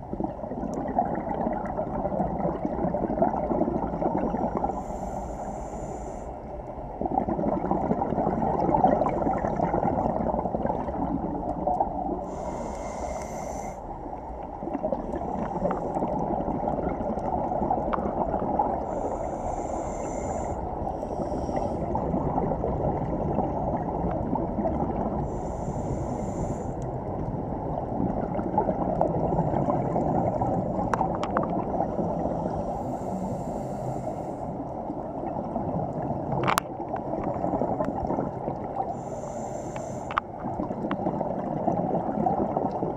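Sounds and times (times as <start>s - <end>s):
exhaled bubbles gurgling: 0.0s - 42.9s
regulator inhale hiss: 4.5s - 6.7s, 12.2s - 14.1s, 18.8s - 22.0s, 25.2s - 26.9s, 32.1s - 34.7s, 38.9s - 40.3s.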